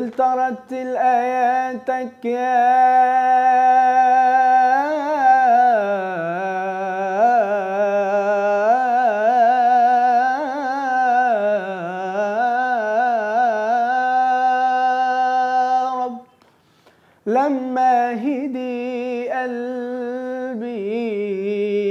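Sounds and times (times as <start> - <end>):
boy singing unaccompanied: 0.0 - 16.3.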